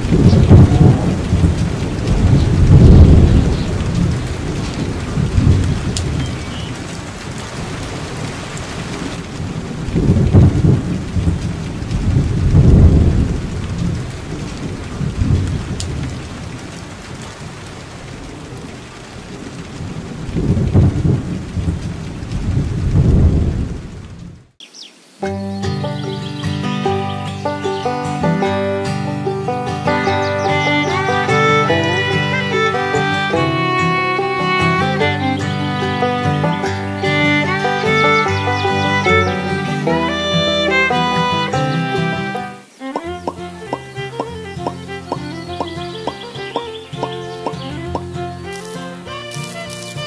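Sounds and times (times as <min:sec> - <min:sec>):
rolling thunder: 0:00.0 - 0:24.5
steady rain: 0:00.0 - 0:50.0.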